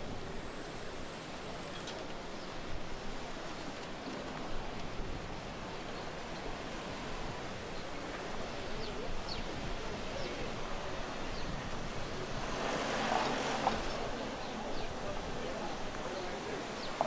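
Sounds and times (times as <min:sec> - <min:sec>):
steady background hiss: 0:00.0 - 0:17.0
passing vehicle noise: 0:09.9 - 0:17.0.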